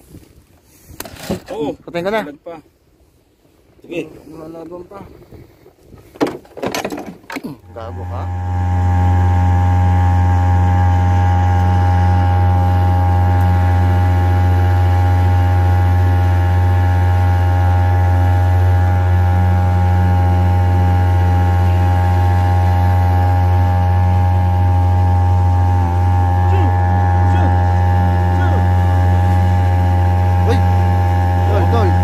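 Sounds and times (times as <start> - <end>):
boat engine droning: 6.9 - 32.0.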